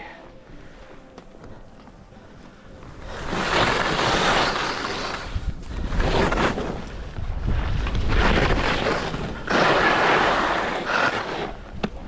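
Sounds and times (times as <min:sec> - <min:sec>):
skis scraping over crusty snow: 0:02.8 - 0:12.0
wind buffeting microphone: 0:05.2 - 0:09.9.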